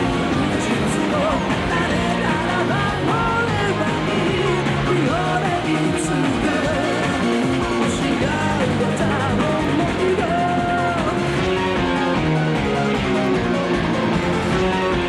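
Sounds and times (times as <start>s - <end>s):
electric guitar: 0.0s - 15.0s
woman singing rock song: 0.6s - 11.3s.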